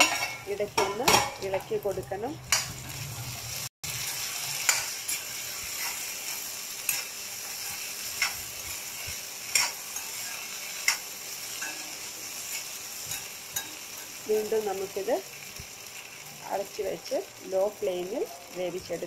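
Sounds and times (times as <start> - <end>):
spatula scraping and clacking pan: 0.0 - 1.5, 4.0 - 14.5
potatoes sizzling: 0.0 - 19.0.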